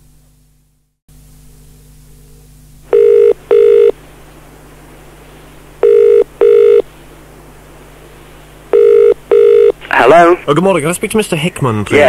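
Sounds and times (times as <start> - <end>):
cassette hiss and hum: 0.0 - 12.0
telephone ringing tone: 2.9 - 4.0, 5.8 - 6.8, 8.7 - 9.8.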